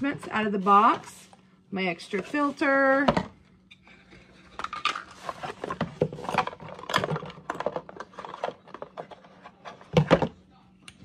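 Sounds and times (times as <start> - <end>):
plastic attachments clicking and knocking: 4.6 - 10.4.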